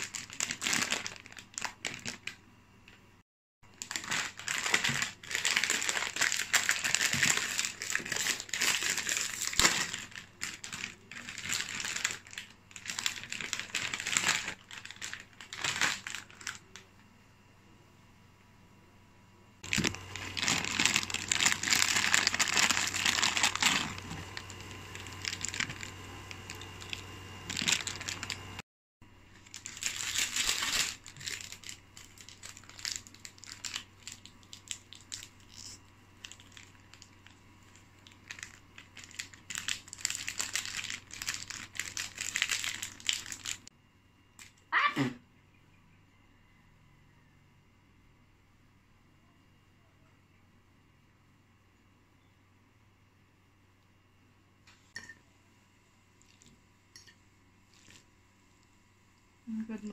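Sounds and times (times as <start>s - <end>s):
plastic packet crinkling: 0.0s - 3.0s, 3.7s - 16.9s, 19.6s - 28.6s, 29.3s - 43.7s, 57.7s - 58.1s
faint low hum: 0.0s - 59.9s.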